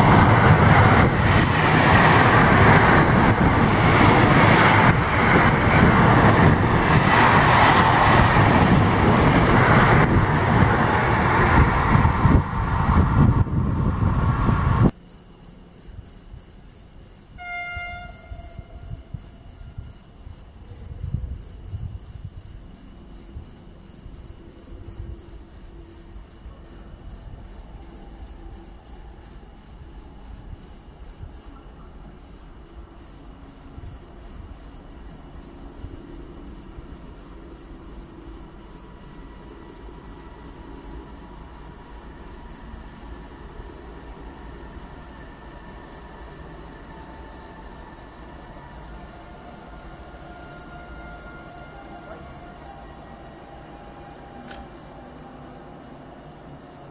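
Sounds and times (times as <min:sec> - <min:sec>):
cricket chirping: 0:13.2 - 0:56.9.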